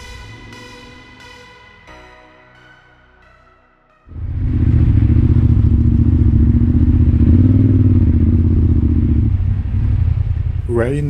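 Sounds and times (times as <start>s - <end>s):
motorcycle engine running: 4.1s - 11.0s.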